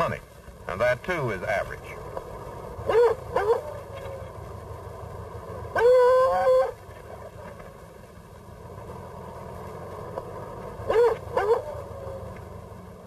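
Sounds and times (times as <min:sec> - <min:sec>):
dog howling: 0:02.9 - 0:04.4, 0:05.7 - 0:06.8, 0:10.9 - 0:12.4.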